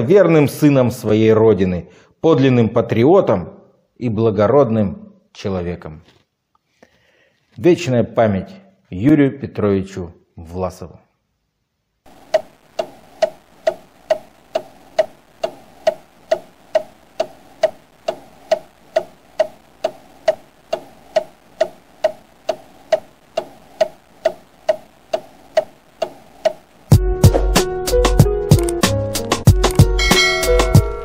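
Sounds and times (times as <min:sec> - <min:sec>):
steady ticking: 0:12.1 - 0:27.0.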